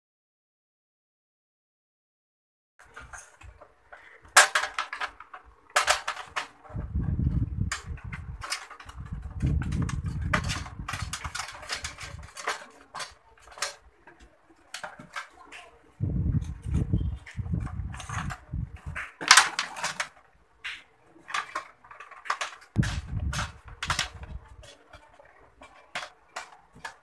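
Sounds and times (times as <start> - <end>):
clicking and rattling of wires: 2.8 - 27.0.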